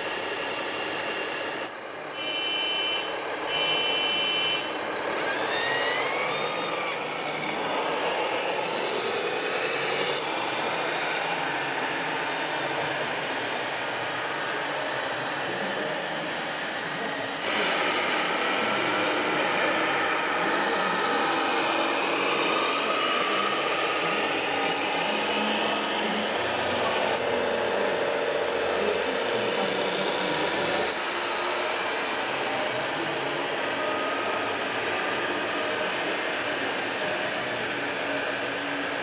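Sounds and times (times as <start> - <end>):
small electric motors whirring: 0.0 - 1.7, 4.8 - 10.3.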